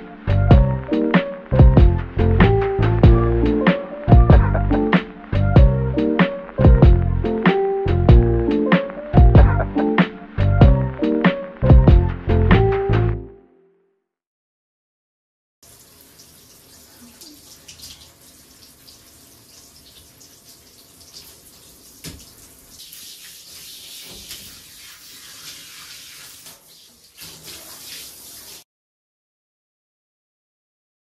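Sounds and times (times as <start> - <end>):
water splashing in bathtub: 15.6 - 28.6
shower head spraying water: 22.8 - 28.6.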